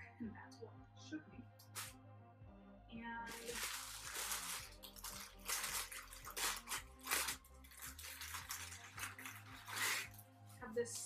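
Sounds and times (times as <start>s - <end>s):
plastic bag crinkling: 3.3s - 10.2s.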